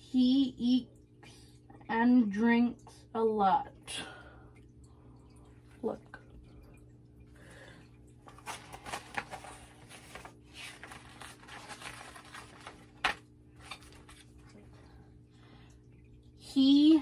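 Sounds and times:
paper pages rustling and flipping: 8.3s - 14.6s.

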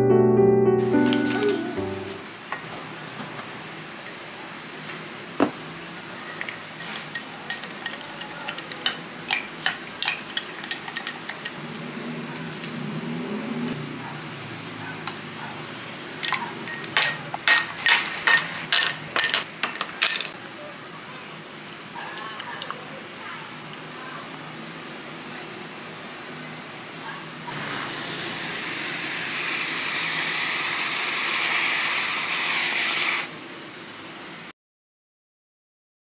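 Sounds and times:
spoon clinking in a glass: 6.4s - 11.6s, 16.7s - 20.4s.

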